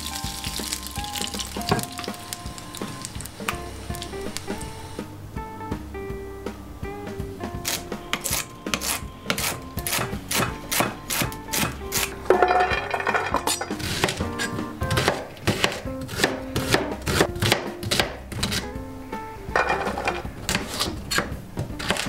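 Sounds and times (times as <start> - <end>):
knife chopping on plastic board: 7.7 - 12.2, 13.4 - 18.6, 19.8 - 22.0.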